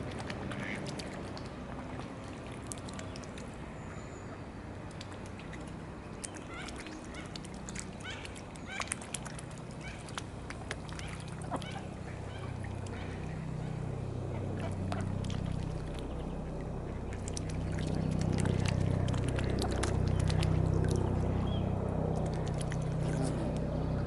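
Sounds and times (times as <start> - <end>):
wet clicks and small splashes: 0.0 - 4.0, 4.7 - 24.0
helicopter drone: 13.0 - 24.0.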